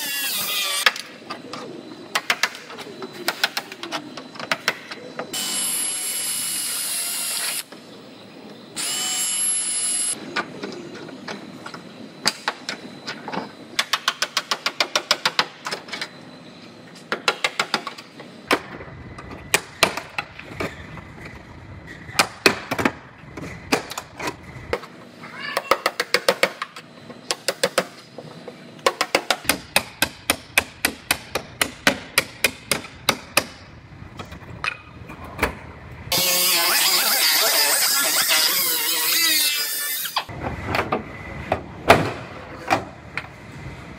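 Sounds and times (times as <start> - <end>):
high-pitched power tool: 0.0 - 1.0, 5.3 - 7.7, 8.8 - 10.2, 36.1 - 40.3.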